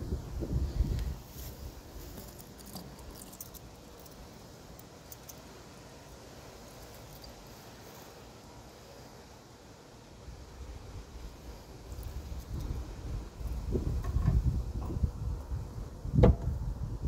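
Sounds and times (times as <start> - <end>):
metallic clicks and rattles: 2.2 - 4.2.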